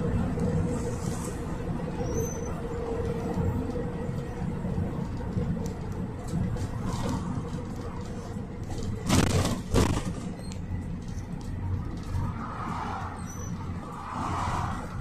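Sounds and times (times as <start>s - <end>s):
low engine and road rumble: 0.0s - 15.0s
vehicle jolt: 8.6s - 15.0s.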